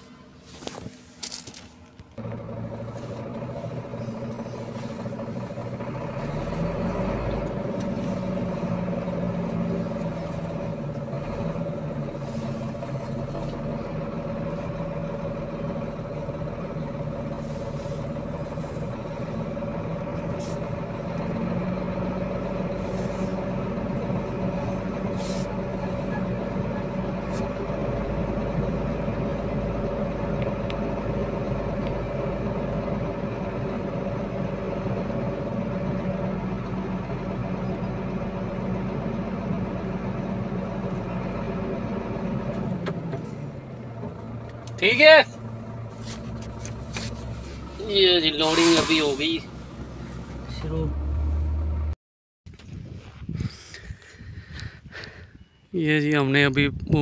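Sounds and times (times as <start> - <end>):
truck diesel engine running: 0.0 - 52.0
short hisses: 48.4 - 49.2.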